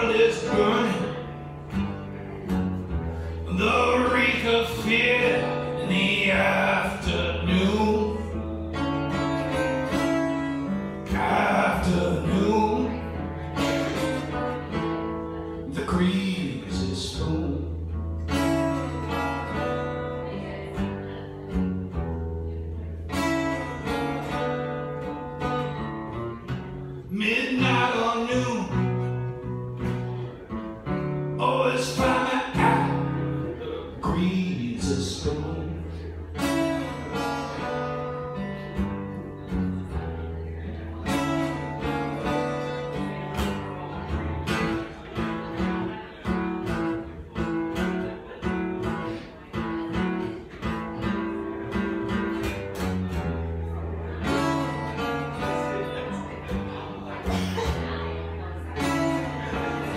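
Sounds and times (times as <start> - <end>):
man singing: 0.0 - 1.4, 3.4 - 18.6, 27.0 - 29.2, 31.4 - 37.7
strummed acoustic guitar: 0.0 - 59.9.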